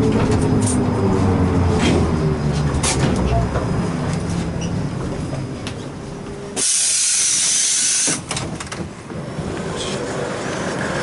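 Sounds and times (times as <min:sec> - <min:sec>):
air hiss from bus doors: 0:06.6 - 0:08.4.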